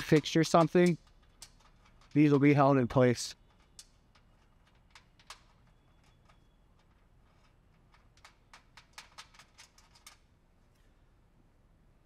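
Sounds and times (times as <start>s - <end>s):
light clicks of nut turning: 3.4s - 10.2s.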